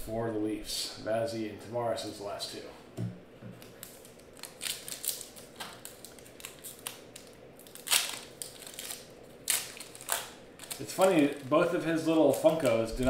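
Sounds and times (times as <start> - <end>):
foil wrapper crinkling and tearing: 3.6 - 13.0.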